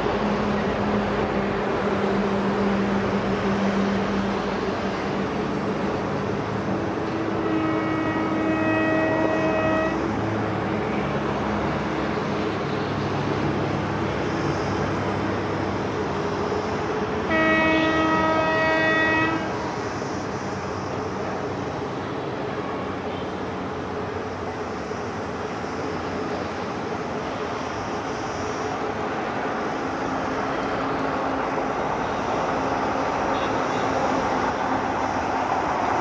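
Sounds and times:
train rumbling: 0:00.0 - 0:36.0
train horn blasts: 0:07.4 - 0:10.2, 0:17.3 - 0:19.6.

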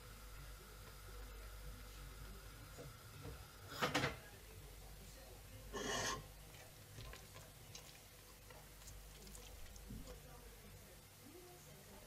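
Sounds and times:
spatula scraping in metal pot: 0:05.8 - 0:06.3.

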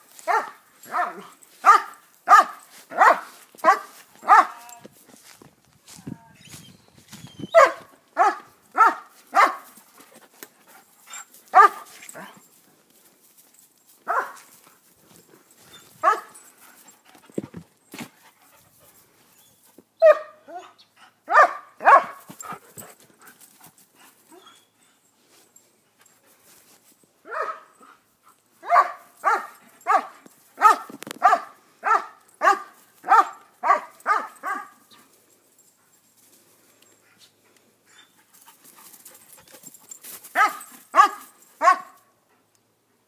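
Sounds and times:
dog barking: 0:00.2 - 0:04.7, 0:07.5 - 0:09.7, 0:11.5 - 0:12.3, 0:14.1 - 0:14.5, 0:16.0 - 0:16.3, 0:20.0 - 0:22.3, 0:27.3 - 0:27.7, 0:28.6 - 0:34.8, 0:40.4 - 0:42.0.

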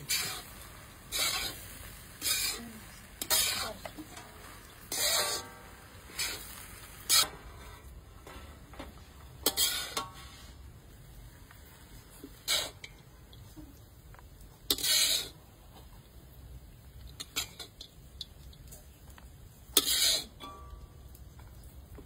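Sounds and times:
metal spatula scraping a wok: 0:00.0 - 0:13.4, 0:14.6 - 0:16.0, 0:17.1 - 0:18.1, 0:18.8 - 0:20.8.

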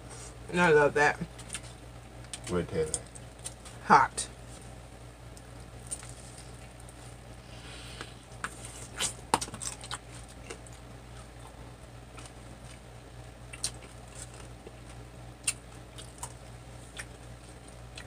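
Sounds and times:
person chewing: 0:07.8 - 0:18.0.

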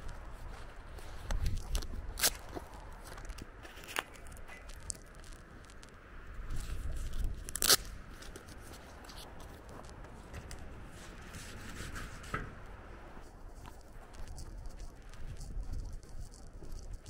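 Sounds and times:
footsteps on wet dirt: 0:00.0 - 0:11.2
wind rumble on microphone: 0:00.0 - 0:17.0.

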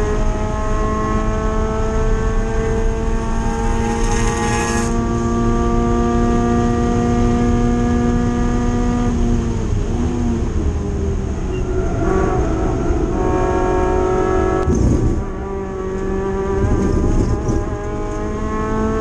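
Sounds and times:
race car engine at high revs: 0:00.0 - 0:19.0
loud rumble: 0:10.6 - 0:18.5.

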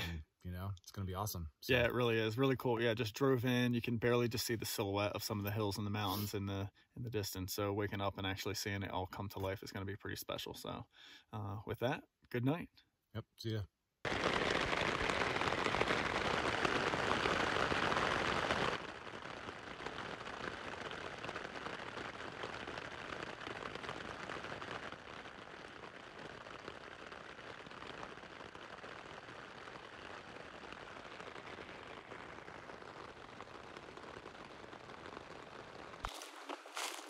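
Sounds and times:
rain pattering on a tent: 0:00.9 - 0:06.4, 0:14.0 - 0:37.0.

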